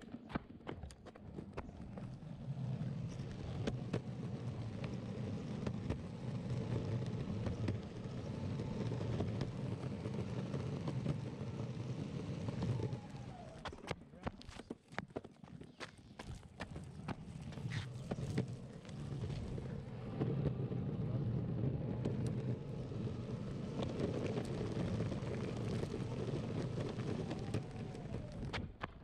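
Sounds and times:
wheels rolling over rough pavement: 0.0s - 29.0s.

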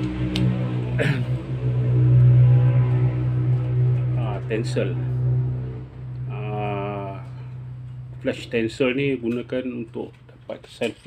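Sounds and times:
wavering held tone: 0.0s - 9.6s
low ambient drone: 0.0s - 10.4s.

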